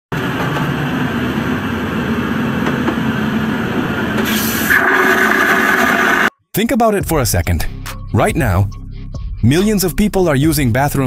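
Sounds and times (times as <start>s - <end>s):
aircraft cabin rumble: 0.1s - 4.4s
vacuum toilet flushing: 0.2s - 6.3s.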